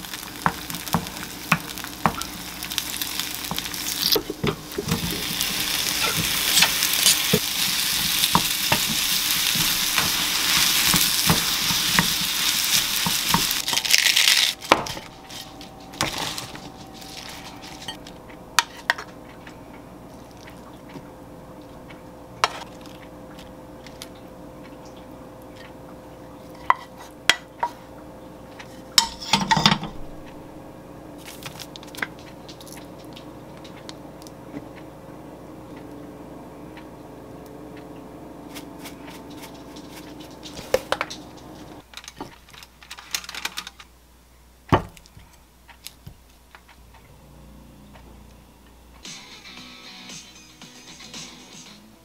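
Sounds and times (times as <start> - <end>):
steady hum: 0.0 - 41.9, 43.8 - 52.0
spatula scraping frying pan: 0.4 - 18.0.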